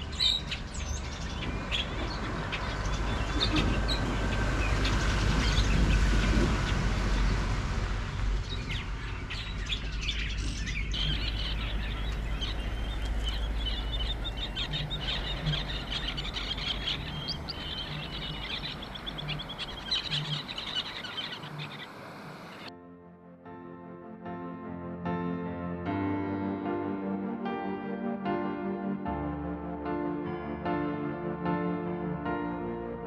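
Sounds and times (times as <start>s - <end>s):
birds chirping: 0.0s - 22.7s
low steady rumble: 0.9s - 22.7s.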